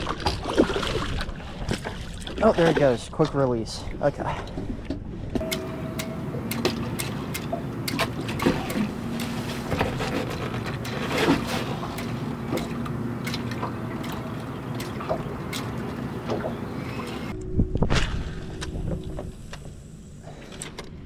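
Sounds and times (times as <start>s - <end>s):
water lapping against boat hull: 0.0s - 5.4s, 6.0s - 17.4s.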